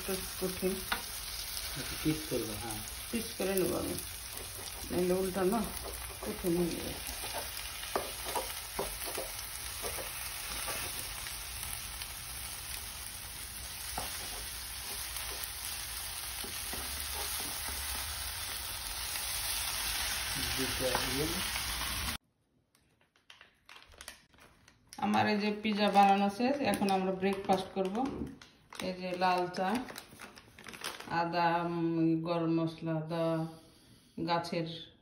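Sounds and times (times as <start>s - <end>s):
vegetables sizzling in frying pan: 0.0s - 22.2s.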